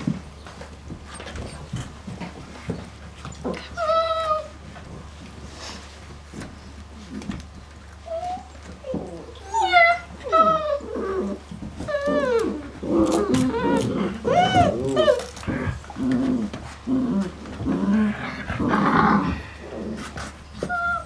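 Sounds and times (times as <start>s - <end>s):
puppies grunting: 0.0s - 5.9s, 6.6s - 21.0s
puppies whining and yelping: 3.2s - 5.0s, 8.0s - 16.6s, 20.5s - 21.0s.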